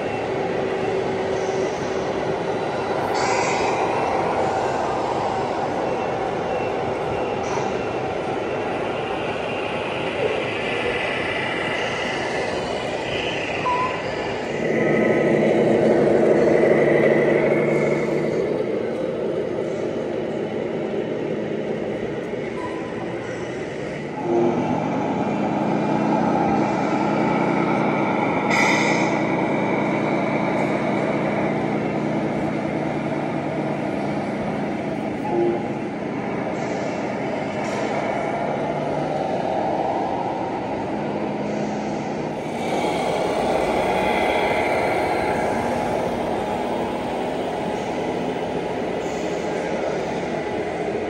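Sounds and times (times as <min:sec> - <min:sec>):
toy truck engine rumble: 0:09.2 - 0:22.4, 0:40.8 - 0:51.0.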